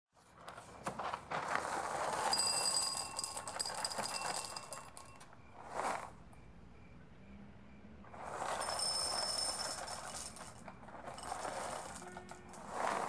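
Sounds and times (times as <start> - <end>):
dry cereal poured into bowl: 11.2 - 13.0.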